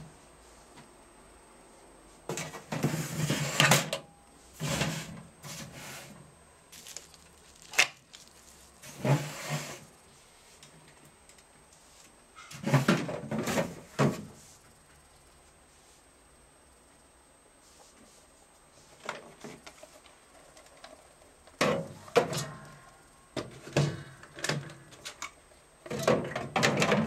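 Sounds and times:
plastic cover knocking and clattering: 25.9s - 27.0s.

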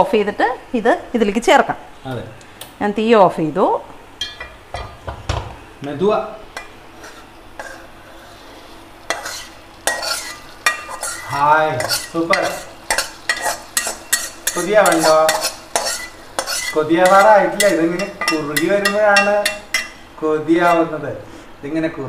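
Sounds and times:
steel spoon scraping a pan: 6.6s - 20.0s.

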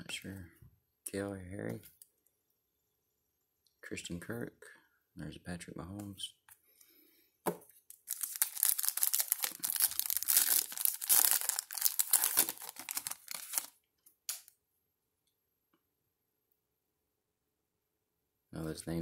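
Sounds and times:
foil wrapper tearing and crinkling: 7.9s - 14.5s.

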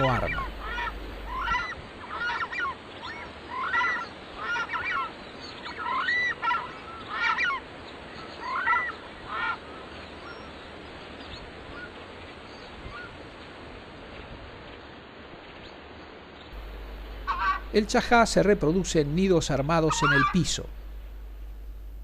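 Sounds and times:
birds honking calls: 0.0s - 10.5s, 16.5s - 21.4s.

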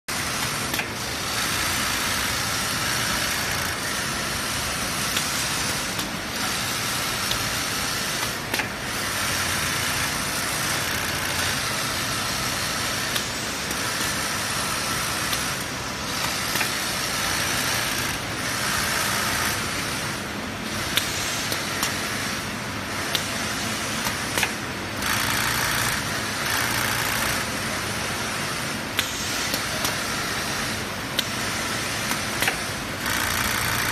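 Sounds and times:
sharp machine clicks: 0.1s - 33.9s
tufting machine buzzing: 9.0s - 27.6s.

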